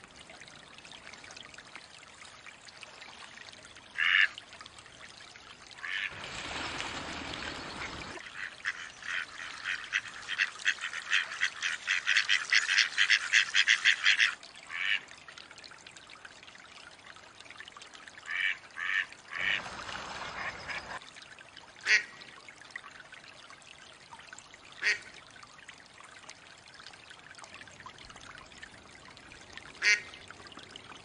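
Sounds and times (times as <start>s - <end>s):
water rushing: 0.0s - 31.0s
ducks dabbling bill chatter: 5.8s - 15.0s, 18.3s - 21.0s, 29.8s - 30.2s
ducks quacking: 18.3s - 21.0s.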